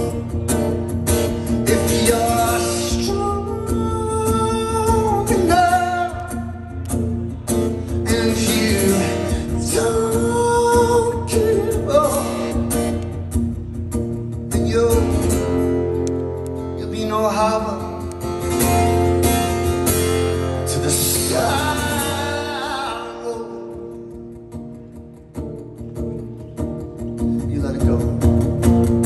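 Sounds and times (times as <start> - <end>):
strummed acoustic guitar: 0.0 - 29.0
man singing: 1.4 - 6.7, 7.8 - 12.8, 14.5 - 15.6, 16.8 - 18.1, 20.6 - 24.1.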